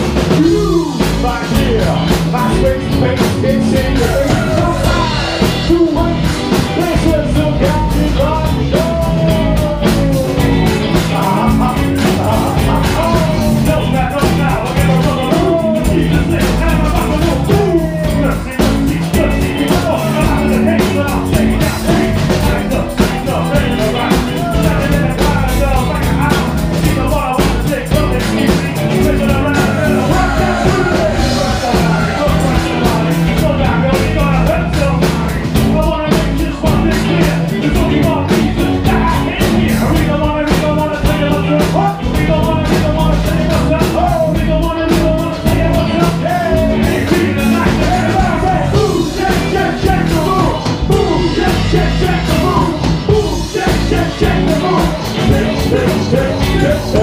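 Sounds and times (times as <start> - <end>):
bass guitar: 0.0 - 57.0
drums: 0.0 - 57.0
man singing into a microphone: 0.0 - 57.0.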